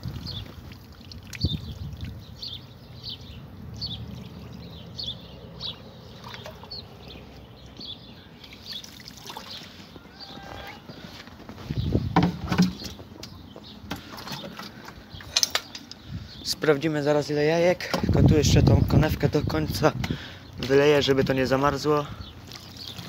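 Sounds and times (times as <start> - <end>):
water pouring from watering can: 0.0 - 2.4, 8.4 - 9.9, 22.4 - 23.0
wind buffeting microphone: 0.0 - 8.0, 9.9 - 14.1, 14.7 - 16.7, 17.9 - 22.9
footsteps crunching in snow: 10.0 - 12.1.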